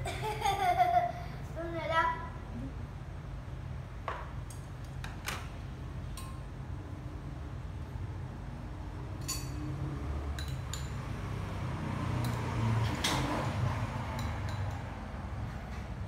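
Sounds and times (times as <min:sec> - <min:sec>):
steady low hum: 0:05.6 - 0:11.6.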